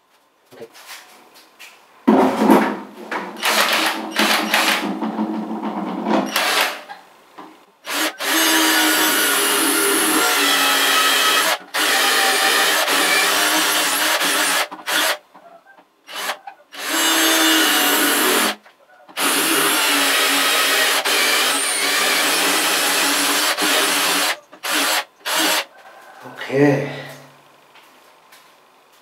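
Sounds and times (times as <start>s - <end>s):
cordless drill grinding into tile: 3.4s - 4.9s, 6.3s - 6.9s, 7.9s - 15.2s, 16.1s - 18.6s, 19.2s - 25.7s.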